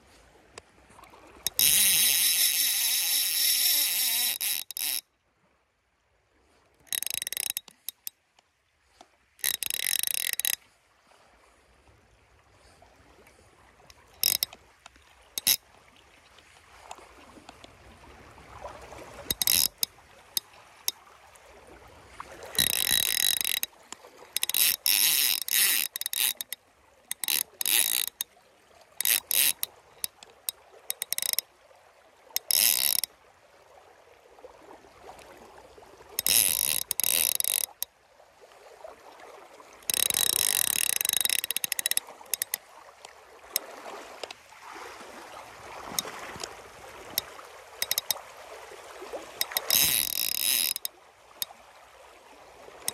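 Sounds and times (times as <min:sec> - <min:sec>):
fly reel ratchet buzzing: 0:01.4 - 0:05.0, 0:06.9 - 0:08.1, 0:09.4 - 0:10.6, 0:14.0 - 0:14.6, 0:15.4 - 0:15.6, 0:19.3 - 0:19.9, 0:22.6 - 0:23.7, 0:24.4 - 0:28.2, 0:29.0 - 0:30.2, 0:30.9 - 0:31.4, 0:32.4 - 0:33.1, 0:36.2 - 0:37.9, 0:39.9 - 0:42.6, 0:47.1 - 0:48.2, 0:49.4 - 0:51.0.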